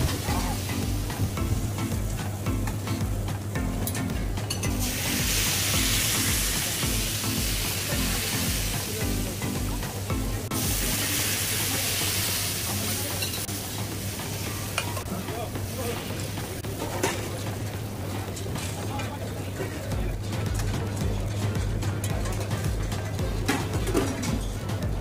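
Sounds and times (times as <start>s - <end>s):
background music with low beat: 0.0s - 25.0s
batter sizzling on a griddle: 4.7s - 16.6s.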